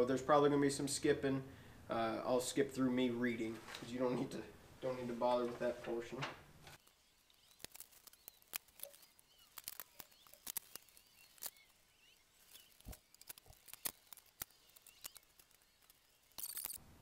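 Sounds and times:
small hand tools clicking: 6.8 - 16.8.

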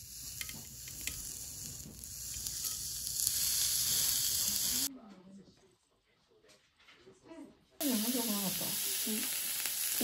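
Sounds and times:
steak sizzling on griddle: 0.0 - 4.9, 7.8 - 10.0.

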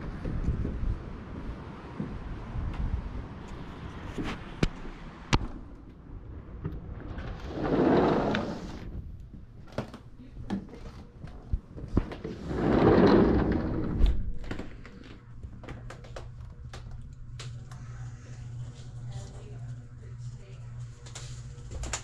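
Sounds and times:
sliding glass door rolling: 6.8 - 9.0, 12.3 - 14.3.

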